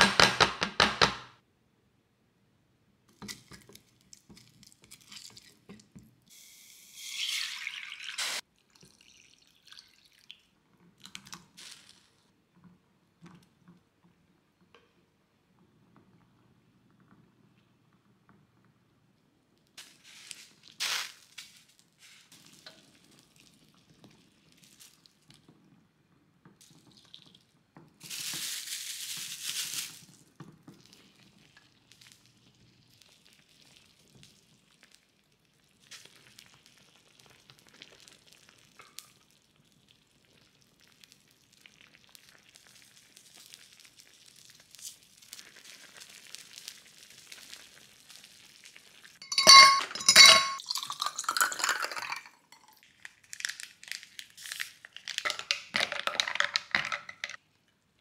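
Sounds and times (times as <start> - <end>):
stew bubbling in pot: 22.3 - 28.0, 30.2 - 49.5.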